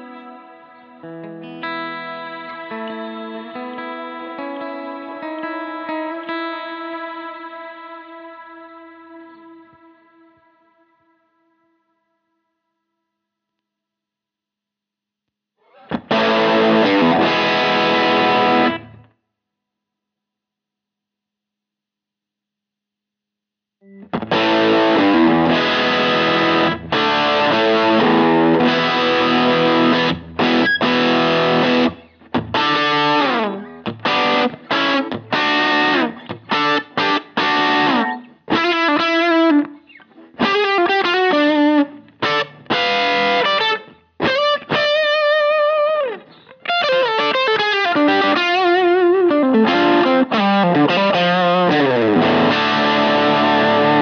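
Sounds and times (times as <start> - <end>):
distorted electric guitar: 0.0 - 10.4, 15.6 - 19.1, 23.8 - 54.0.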